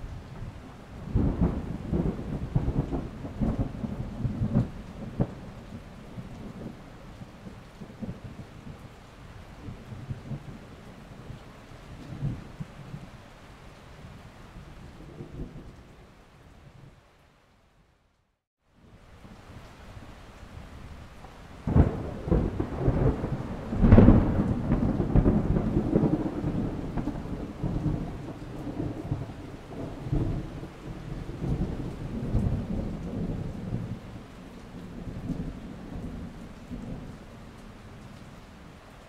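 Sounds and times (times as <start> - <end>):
low thunder rumble: 0.0 - 8.9, 20.6 - 38.0
thunder crack: 21.6 - 30.5.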